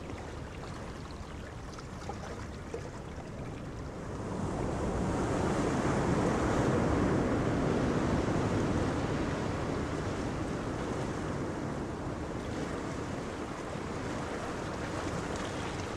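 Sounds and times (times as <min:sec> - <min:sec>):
sea water rushing: 0:00.0 - 0:06.7, 0:07.6 - 0:15.9.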